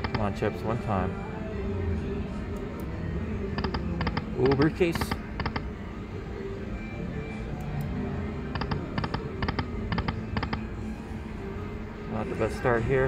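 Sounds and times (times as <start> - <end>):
casino background sound: 3.6 - 5.7.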